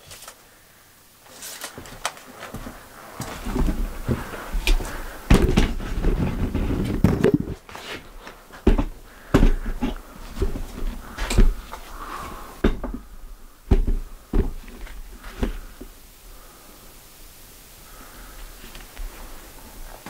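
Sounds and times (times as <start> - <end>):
scraping and rustling: 0.0 - 0.5, 1.2 - 16.6
sharp knocks and clatters: 13.7 - 15.6.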